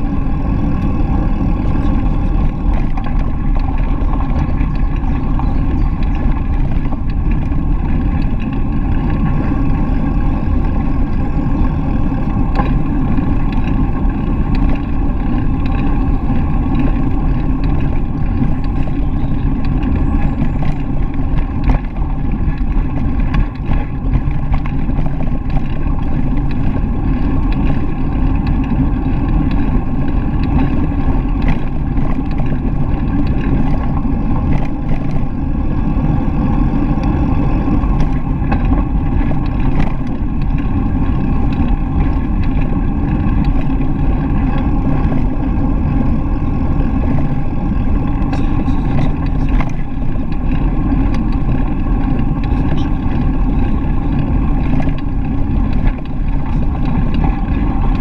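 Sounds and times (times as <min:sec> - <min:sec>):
bicycle tyre noise on pavement: 0:00.0 - 0:58.0
wind on microphone: 0:00.0 - 0:58.0.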